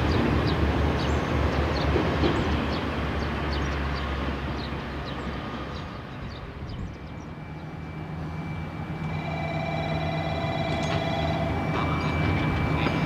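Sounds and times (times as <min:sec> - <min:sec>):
diesel train engine hum: 0:00.0 - 0:13.0
high steady whining tones: 0:07.0 - 0:13.0.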